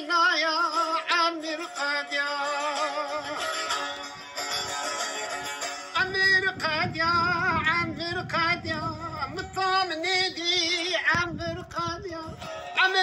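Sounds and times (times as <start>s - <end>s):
instrumental accompaniment: 1.7s - 7.5s.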